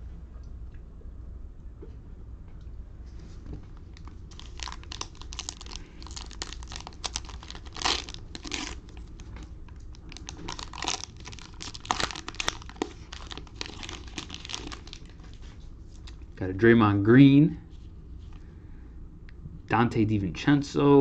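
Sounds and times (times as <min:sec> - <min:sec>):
cellophane wrapper crinkling and tearing: 0:03.7 - 0:16.4.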